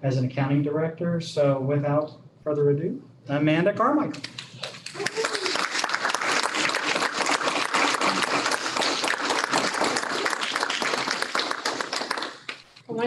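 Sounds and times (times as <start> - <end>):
people applauding: 4.4 - 12.7.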